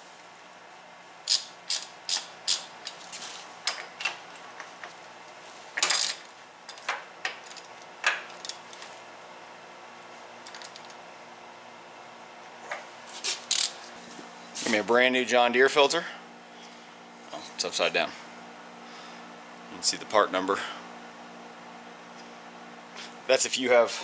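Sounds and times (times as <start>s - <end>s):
socket wrench clicking: 1.3s - 3.0s.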